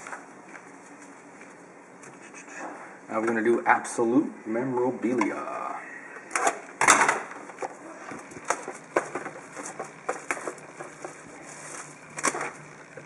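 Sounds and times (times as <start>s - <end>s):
plastic wrap crackling: 7.5s - 13.0s.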